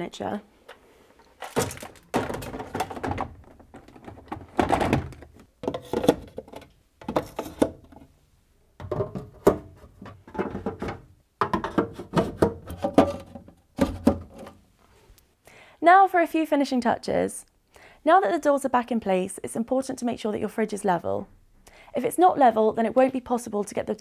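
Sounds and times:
plastic fridge bins knocking: 1.5 - 8.0, 8.8 - 14.4.

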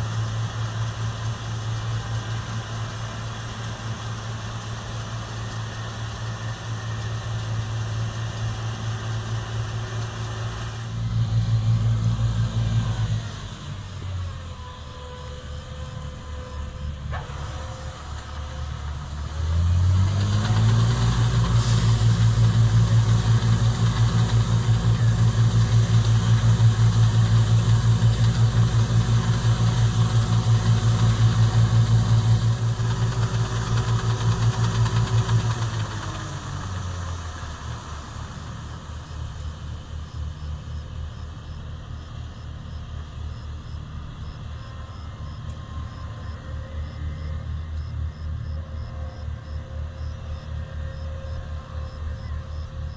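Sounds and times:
combine harvester running: 0.0 - 52.9
grain pouring into trailer: 19.4 - 39.3.

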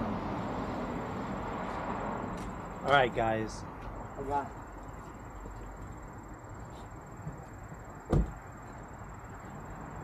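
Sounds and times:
quiet outdoor background: 0.0 - 10.0
car door shutting: 8.0 - 8.5.

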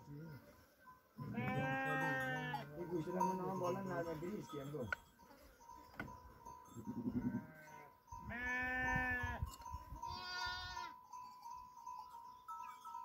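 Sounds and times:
sheep bleating: 1.2 - 2.7, 6.9 - 9.4, 10.1 - 11.0.

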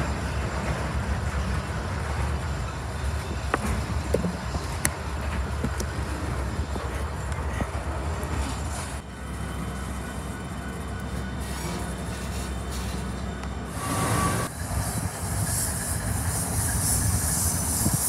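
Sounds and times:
train running gear clicks and knocks: 0.0 - 8.7
freight train rolling past: 0.0 - 18.0.

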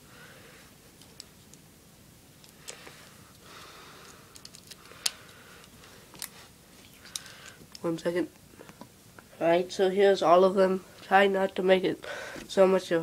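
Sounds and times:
light rustling of cables: 2.4 - 9.3.

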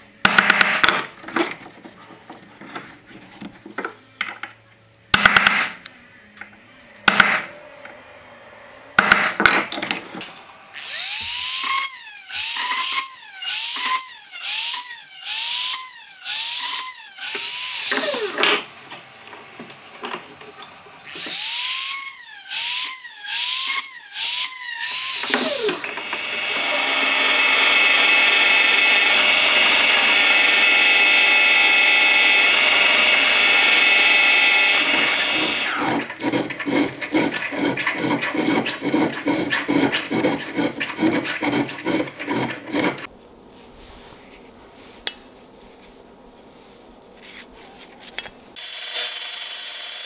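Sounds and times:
power tool motor whining: 10.8 - 18.6, 21.0 - 36.3
drill press drilling brass: 21.1 - 36.4
hand filing on brass: 36.2 - 43.1.

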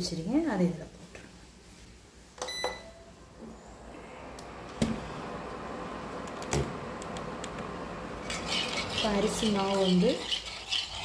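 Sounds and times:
cooling fan whirring: 2.2 - 11.0
control panel beep: 2.4 - 3.0.

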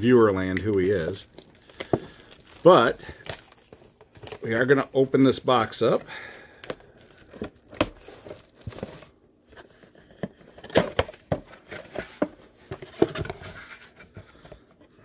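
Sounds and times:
plastic wrap crinkling and tearing: 0.0 - 9.2.

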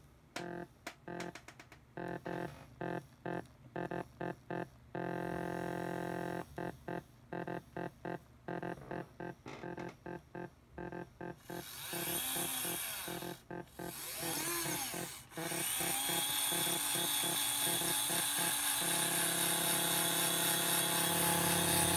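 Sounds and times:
harsh buzzing drone: 18.9 - 21.9.

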